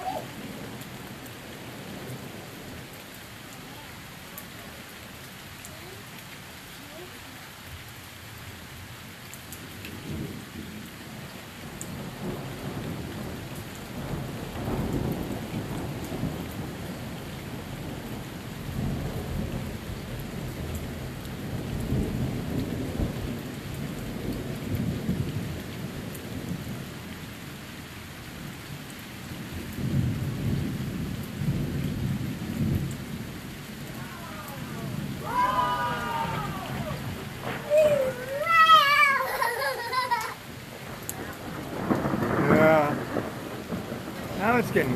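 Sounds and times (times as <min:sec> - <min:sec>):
steady rain: 0:00.0 - 0:44.9
thunder rumbling: 0:11.7 - 0:27.1, 0:29.5 - 0:44.9.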